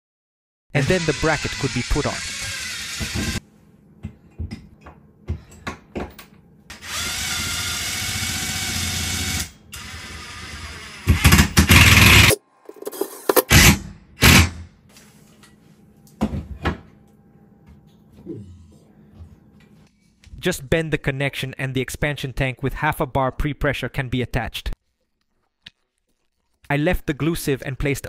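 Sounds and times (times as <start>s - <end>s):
cordless drill driving screws: 0.8s - 3.4s.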